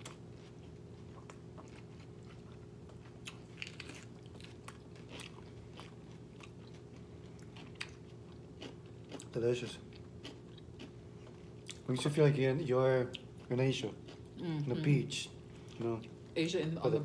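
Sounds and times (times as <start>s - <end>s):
crunching lettuce: 0.0s - 12.0s.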